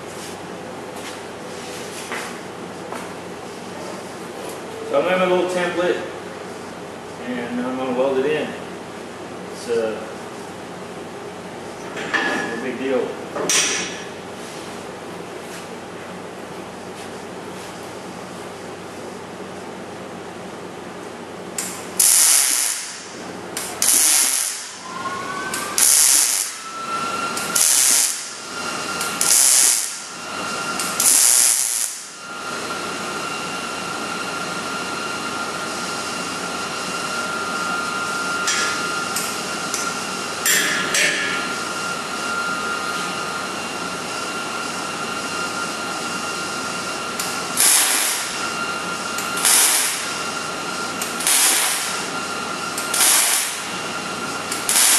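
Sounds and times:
welder arc bursts: 0:21.6 - 0:24.9, 0:25.5 - 0:26.7, 0:27.4 - 0:28.4, 0:29.0 - 0:30.1, 0:30.8 - 0:32.2, 0:47.2 - 0:48.4, 0:49.2 - 0:50.1, 0:51.0 - 0:52.0, 0:52.8 - 0:53.7, 0:54.5 - 0:54.9.

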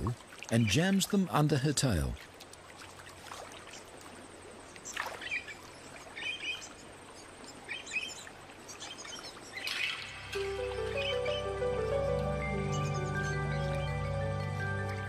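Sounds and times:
small birds chirping: 0:04.6 - 0:15.0.

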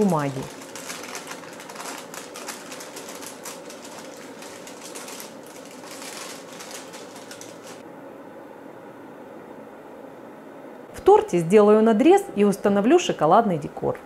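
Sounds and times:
baking paper crinkling: 0:00.0 - 0:07.8.

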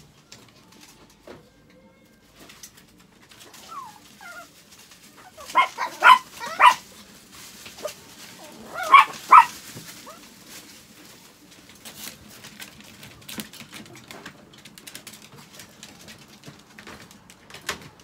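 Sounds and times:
dog whining: 0:03.4 - 0:06.8, 0:08.4 - 0:10.2
small dog barking: 0:05.4 - 0:06.9, 0:08.7 - 0:10.2.

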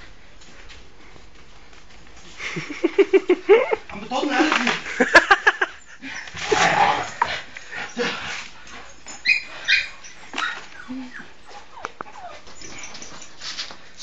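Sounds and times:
scuffling on floor: 0:00.0 - 0:05.6, 0:06.3 - 0:14.0
dogs whining and yipping: 0:05.6 - 0:13.8.

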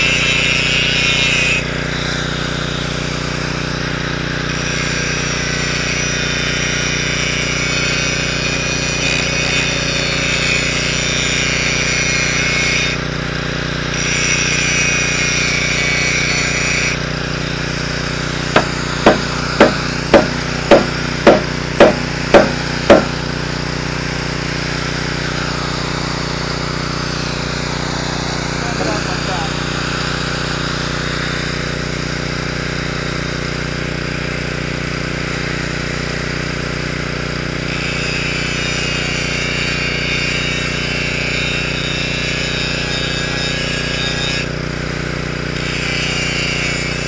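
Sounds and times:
arc welding crackling and sizzling: 0:00.0 - 0:31.7
sharp metal strikes: 0:18.6 - 0:23.2.

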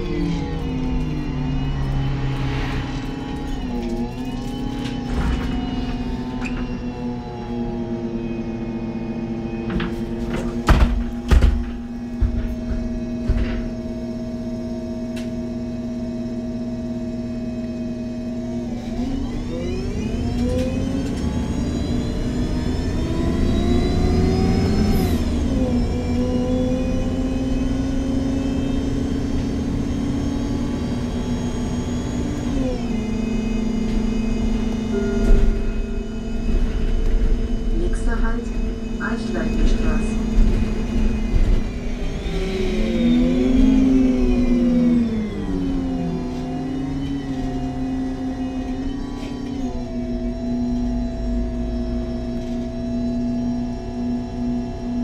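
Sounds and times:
bus engine humming: 0:00.0 - 0:55.0
gearbox whine: 0:00.0 - 0:55.0.

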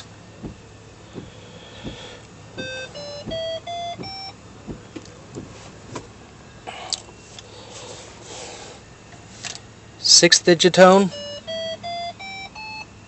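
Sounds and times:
electronic beeps rising in pitch: 0:02.6 - 0:04.4, 0:11.1 - 0:12.9.

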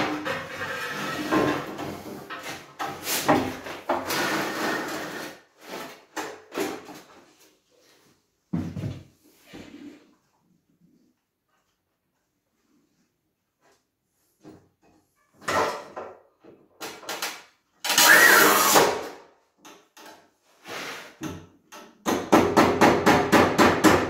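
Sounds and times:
tile scraping on cutter bed: 0:00.0 - 0:06.1.

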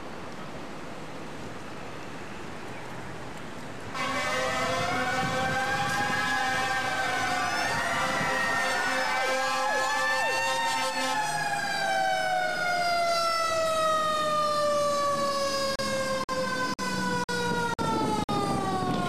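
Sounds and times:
mechanical siren winding down: 0:04.6 - 0:19.0.

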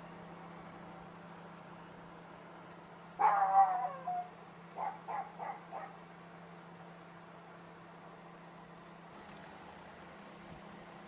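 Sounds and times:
microwave oven humming: 0:00.0 - 0:11.0
animal calling: 0:03.2 - 0:06.0.

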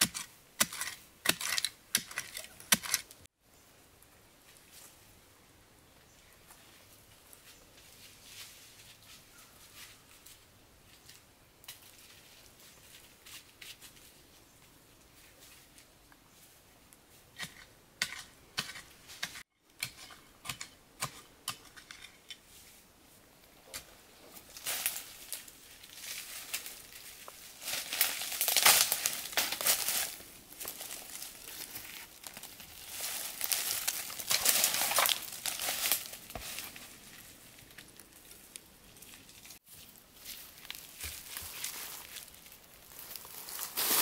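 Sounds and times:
crinkling and rustling: 0:24.3 - 0:44.0.

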